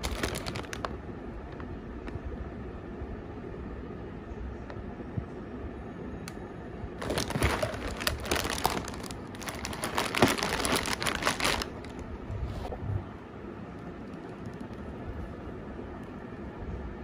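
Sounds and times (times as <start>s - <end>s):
plastic packet crinkling: 0.0s - 0.9s, 7.0s - 12.1s.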